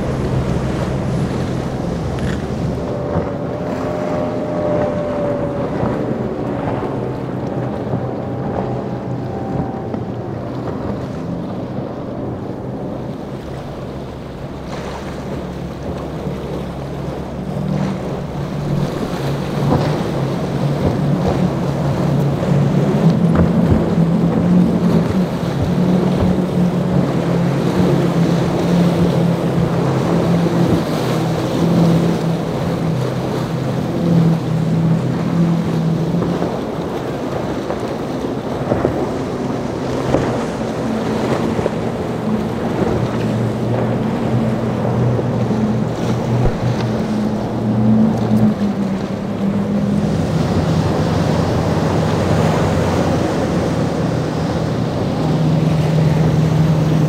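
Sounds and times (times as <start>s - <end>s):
hulls splashing through water: 0.0s - 57.0s
outboard engine drone: 0.0s - 57.0s
wind on microphone: 0.0s - 57.0s.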